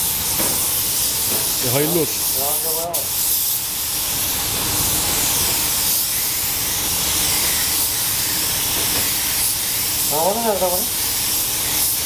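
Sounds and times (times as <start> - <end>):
paint spray gun hissing: 0.0 - 12.0.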